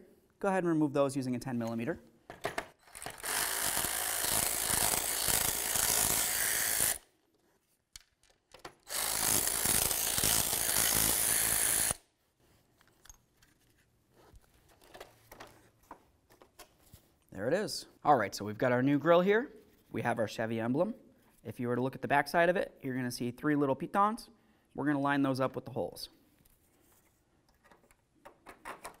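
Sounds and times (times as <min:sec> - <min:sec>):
electric ratchet spinning: 0:02.8 - 0:07.1, 0:08.8 - 0:12.0.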